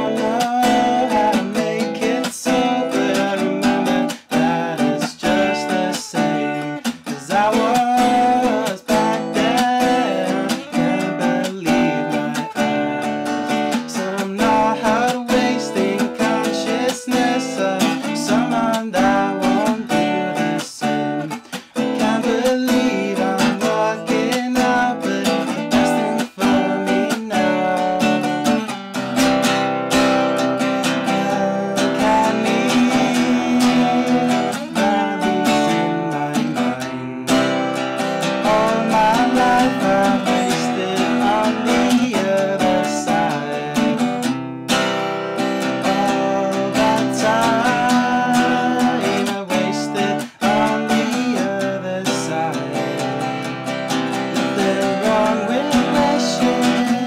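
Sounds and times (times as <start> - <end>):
acoustic guitar playing: 0.0 - 57.0.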